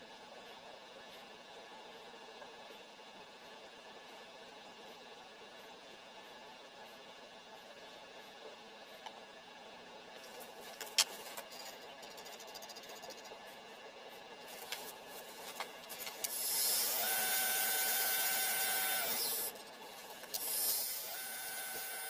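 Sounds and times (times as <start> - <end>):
lathe motor whining: 14.5 - 22.0.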